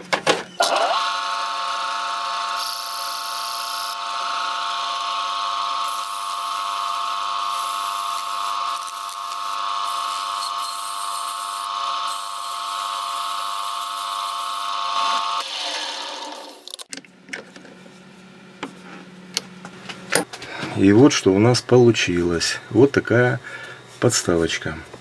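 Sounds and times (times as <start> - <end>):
lathe whining: 0.6 - 16.8
sandpaper hissing on spinning wood: 2.6 - 4.0, 4.8 - 15.4.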